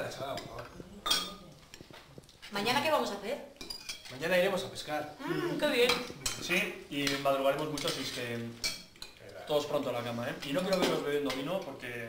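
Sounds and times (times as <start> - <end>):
conversation at table: 0.0 - 12.0
cutlery and plates clinking: 0.1 - 2.1, 3.6 - 4.4, 5.8 - 11.9.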